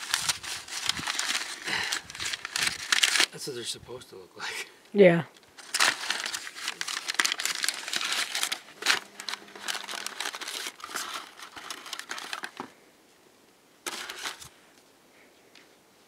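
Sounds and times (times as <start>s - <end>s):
cardboard box rustling: 0.0s - 3.3s, 5.6s - 12.7s, 13.8s - 14.5s
paper wrap crinkling: 0.0s - 3.4s, 5.6s - 12.8s, 13.8s - 14.6s.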